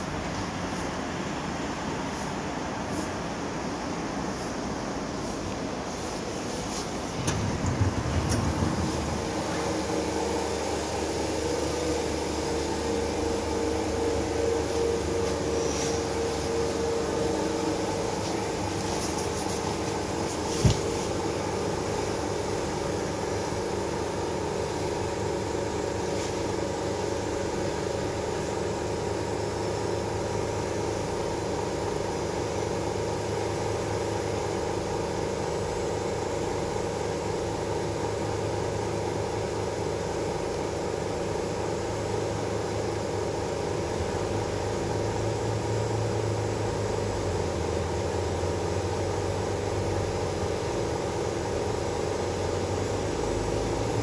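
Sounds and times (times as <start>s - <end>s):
monorail car hum: 0.0s - 54.0s
steady tone: 6.2s - 20.3s.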